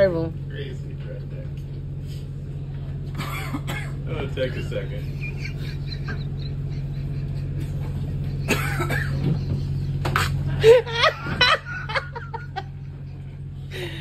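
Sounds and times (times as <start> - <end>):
boat hum: 0.0 - 14.0
person coughing: 3.2 - 4.0, 8.5 - 9.2.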